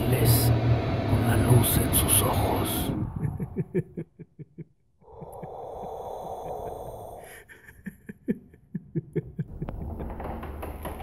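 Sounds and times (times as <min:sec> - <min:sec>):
rushing noise: 0:00.0 - 0:03.9.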